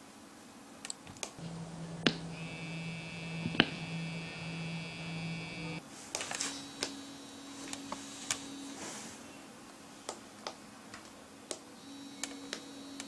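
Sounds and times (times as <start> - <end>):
receiver vibrating under water: 2.0 - 5.8.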